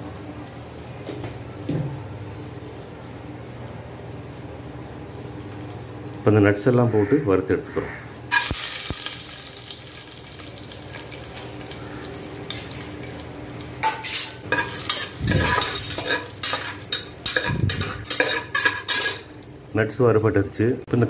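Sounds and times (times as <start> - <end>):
nuts sizzling in oil: 8.3 - 19.3
metal spoon scraping pot: 13.9 - 19.3.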